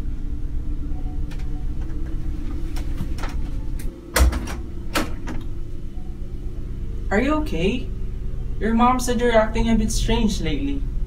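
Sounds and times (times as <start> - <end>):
steady low hum: 0.0 - 11.0
door opening: 1.3 - 5.6.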